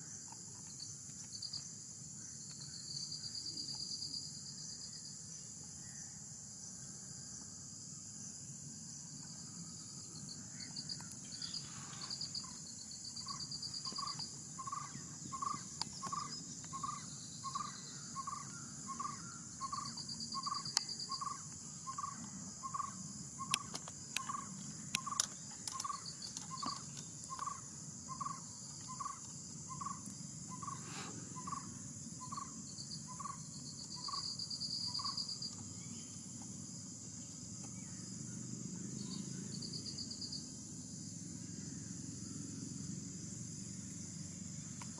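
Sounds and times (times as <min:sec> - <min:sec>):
crickets and insects chirping: 0:00.0 - 0:44.9
pulsed insect trill: 0:00.0 - 0:44.9
sharp clicks: 0:23.5 - 0:27.5.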